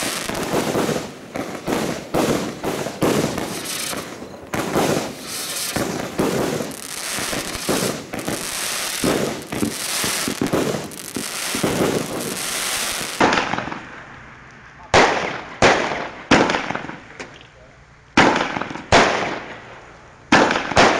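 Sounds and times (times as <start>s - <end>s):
sharp firework bang: 0.0s - 13.8s
fireworks bangs and crackling: 0.0s - 14.2s, 14.9s - 17.3s, 18.2s - 20.9s.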